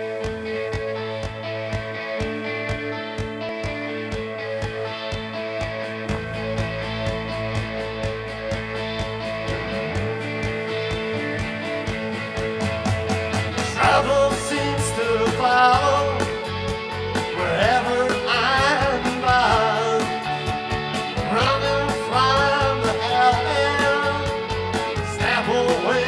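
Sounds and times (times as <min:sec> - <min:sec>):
electric bass: 0:00.0 - 0:26.0
electric guitar: 0:00.0 - 0:26.0
drum kit: 0:06.1 - 0:26.0.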